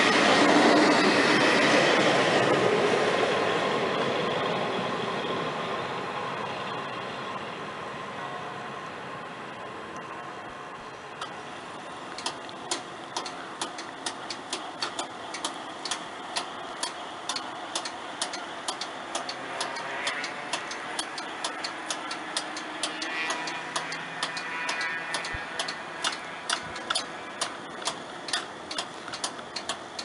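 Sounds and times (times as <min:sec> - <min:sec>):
steady background noise: 0:00.0 - 0:30.0.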